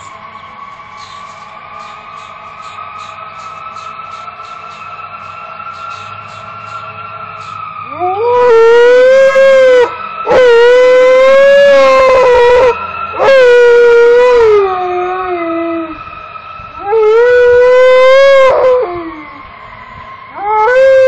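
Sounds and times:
fire truck sirens: 0:00.0 - 0:21.0
dog howling: 0:07.4 - 0:16.1, 0:16.8 - 0:19.5, 0:20.3 - 0:21.0.

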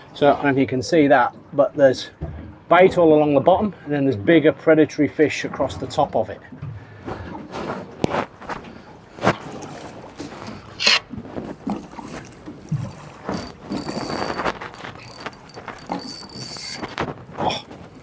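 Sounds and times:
water slapping against boat hull: 0:05.5 - 0:18.0.

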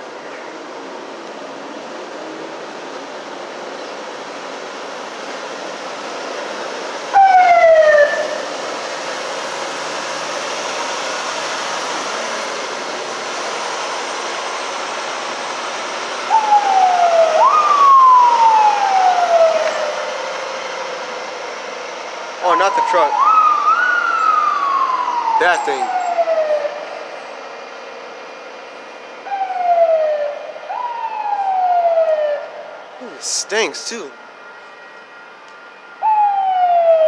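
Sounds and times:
truck moving on rails: 0:00.0 - 0:37.0
siren wailing: 0:07.1 - 0:08.8, 0:16.2 - 0:20.1, 0:22.4 - 0:27.1, 0:29.2 - 0:37.0.

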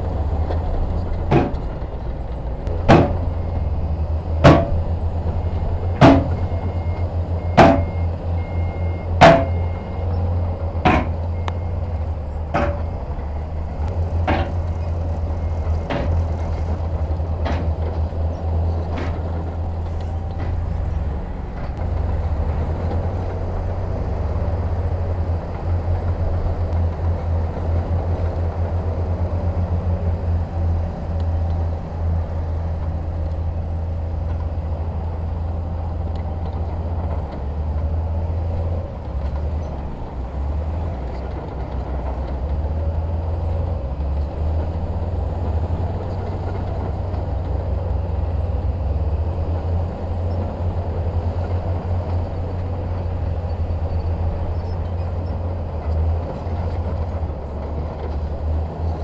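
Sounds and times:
diesel engine throbbing: 0:00.0 - 0:59.0
sharp knocks: 0:02.8 - 0:03.3, 0:04.4 - 0:04.8, 0:06.0 - 0:06.4, 0:07.6 - 0:07.9, 0:09.2 - 0:09.6, 0:10.8 - 0:11.2.

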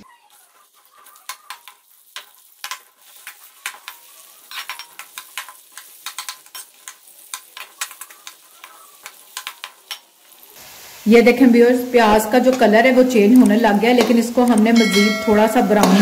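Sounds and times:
onions sizzling in oil: 0:00.0 - 0:16.0
metal spoon scraping a pot: 0:00.3 - 0:10.0.

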